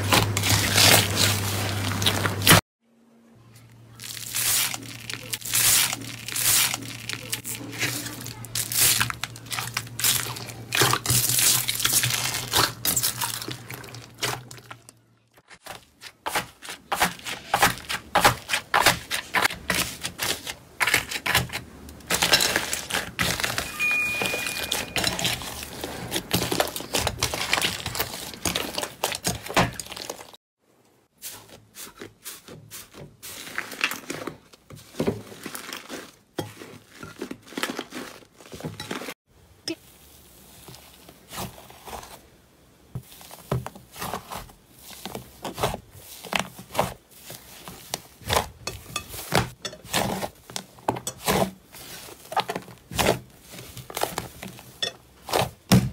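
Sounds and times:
hands squeezing slime: 4.0 - 14.9.

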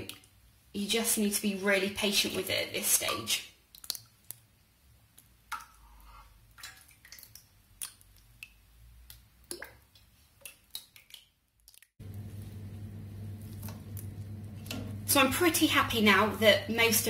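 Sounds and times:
small wet squelches: 2.9 - 12.2
soft drips: 3.0 - 12.6
steady low hum: 12.0 - 16.4.

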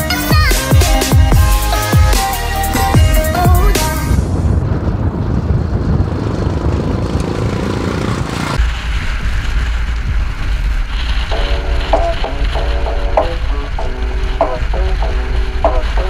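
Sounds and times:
music: 0.0 - 4.2, 11.3 - 16.0
motorcycle engine rumble: 0.3 - 16.0
wind noise: 0.3 - 16.0.

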